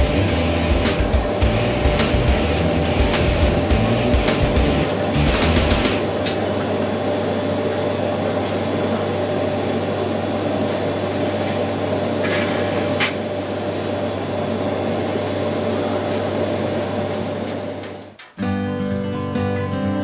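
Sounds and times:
constant low hum: 0.0s - 6.4s
extraction fan whooshing: 0.0s - 17.8s.

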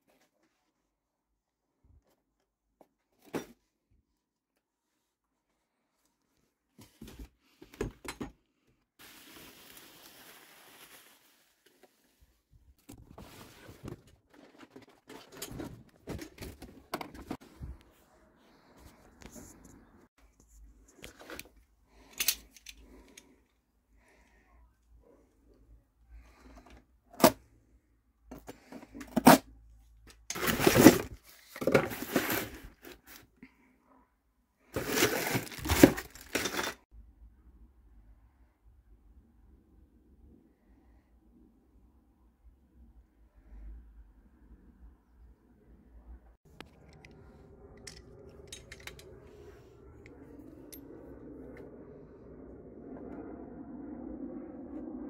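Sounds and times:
rustling and scraping: 9.0s - 23.4s, 30.1s - 33.3s, 34.8s - 36.9s.

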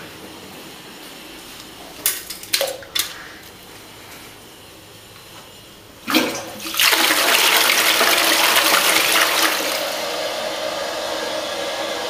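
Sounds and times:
toilet flushing: 6.0s - 12.0s.

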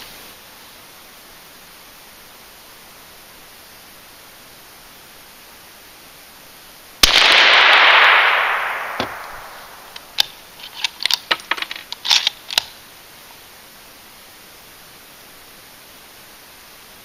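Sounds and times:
suppressed rifle shot: 7.0s - 10.4s
rifle bolt clicking and clacking: 8.9s - 12.7s.

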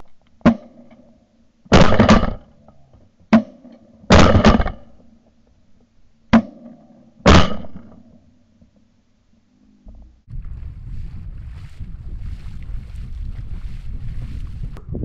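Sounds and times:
faint steady hum: 0.0s - 4.1s, 4.7s - 15.0s
shotgun blasts: 1.7s - 2.5s, 3.3s - 5.0s, 6.3s - 8.0s.

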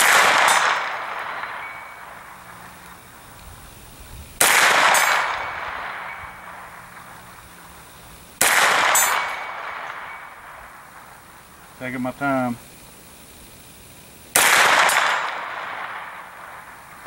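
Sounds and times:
gunshots with long echo: 0.0s - 3.3s, 4.4s - 11.8s, 14.3s - 17.0s.

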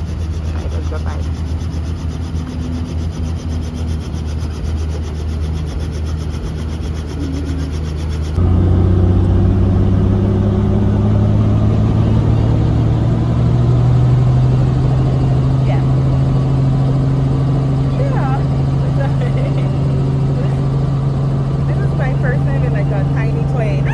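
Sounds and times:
helicopter engine hum: 0.0s - 23.9s
helicopter rotor beating: 0.0s - 23.9s.

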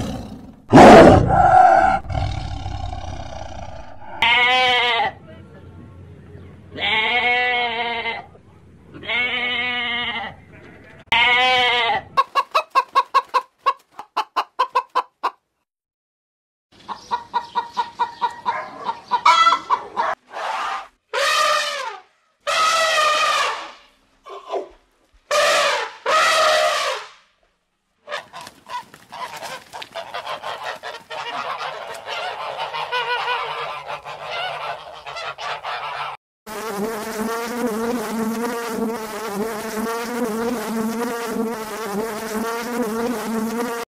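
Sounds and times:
long falling animal calls: 1.1s - 4.4s
wasp buzzing: 36.5s - 43.9s.

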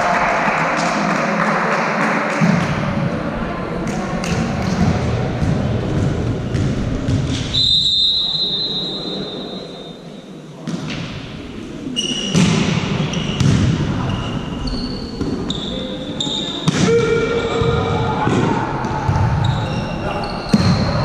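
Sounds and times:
players' voices: 0.0s - 21.0s
volleyball bouncing on floor: 4.3s - 7.4s, 12.3s - 13.8s
referee whistle blast: 7.5s - 9.7s.

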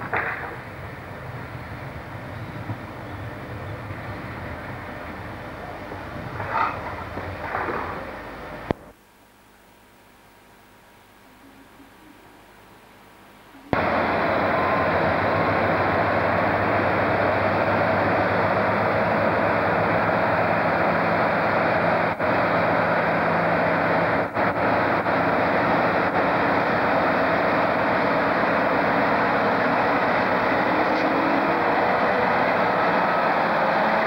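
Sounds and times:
diesel locomotive engine running: 0.0s - 9.0s, 13.6s - 34.0s.

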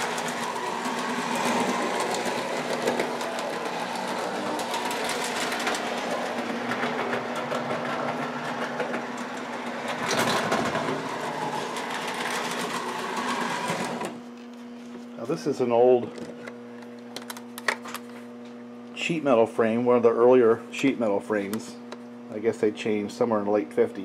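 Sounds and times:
wheels clattering over rail joints: 0.0s - 14.0s
toy train motor humming: 0.0s - 14.2s.

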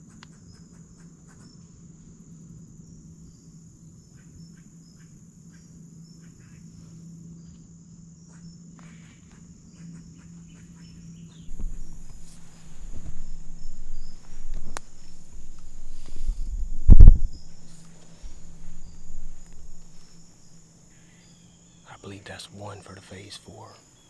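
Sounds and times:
insects chirring: 0.0s - 24.0s
low rumbling and rustling: 11.4s - 21.0s
faint ticks: 11.5s - 20.6s.

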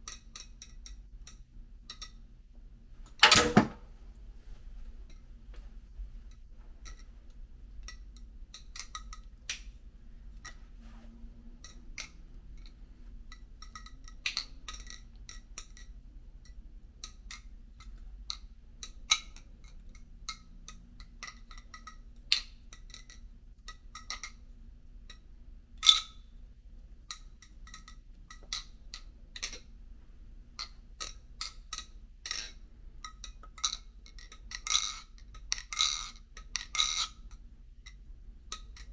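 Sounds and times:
faint low hum: 0.0s - 38.9s.

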